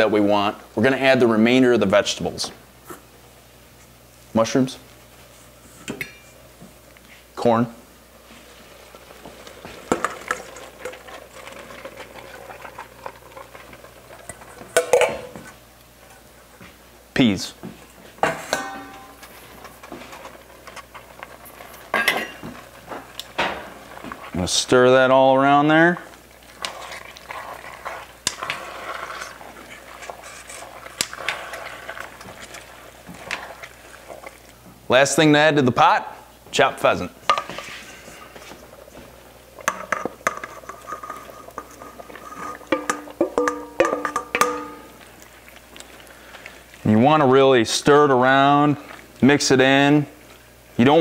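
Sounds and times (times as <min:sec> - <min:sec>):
filling bubbling and stirred: 0:07.3 - 0:17.1, 0:17.8 - 0:51.0
food scraped into pot: 0:26.4 - 0:34.4, 0:37.4 - 0:39.0, 0:39.6 - 0:43.2
metal spoon knocking steel bowl: 0:42.8 - 0:44.9.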